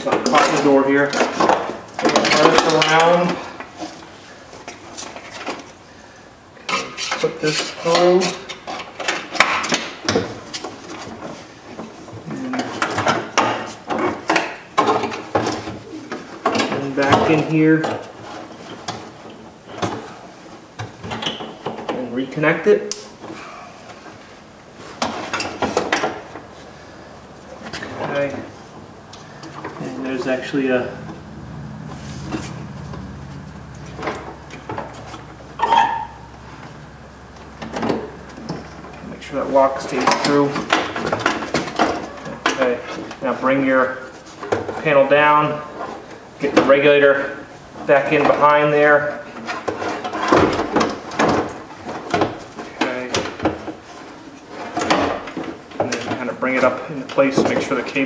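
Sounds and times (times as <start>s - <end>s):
steady low hum: 25.8s - 43.4s
clicks knocks and rubbing: 31.0s - 39.1s
short squeak: 35.6s - 36.3s.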